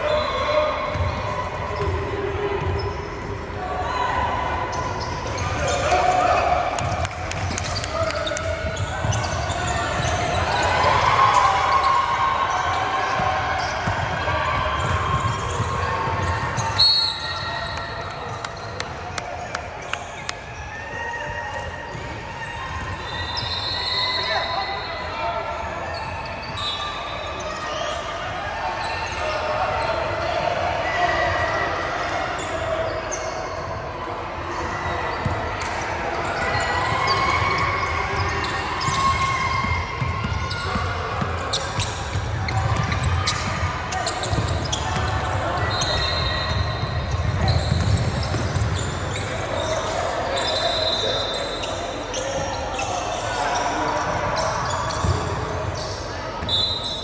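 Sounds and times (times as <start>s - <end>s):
basketball bouncing on court: 0.9s - 2.9s, 6.8s - 10.6s, 13.1s - 16.8s, 38.1s - 49.4s, 54.6s - 55.8s
high-pitched shoe squeal: 14.8s - 18.0s, 23.0s - 25.1s, 25.9s - 28.1s, 40.3s - 57.0s.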